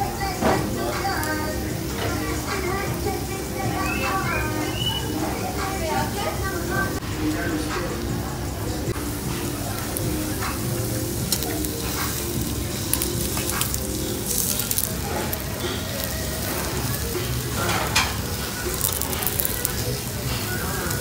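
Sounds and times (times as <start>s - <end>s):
meat sizzling on grill: 0.0s - 21.0s
metal tongs scraping grill: 11.1s - 21.0s.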